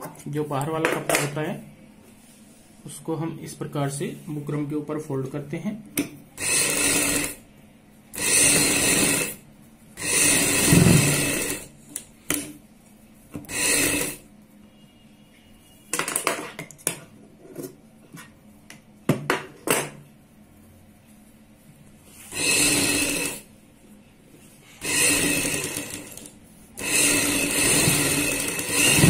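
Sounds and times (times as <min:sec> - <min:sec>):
sewing machine stitching: 0:06.4 - 0:07.4, 0:08.2 - 0:09.4, 0:10.0 - 0:11.7, 0:13.5 - 0:14.2, 0:22.3 - 0:23.5, 0:24.8 - 0:29.0.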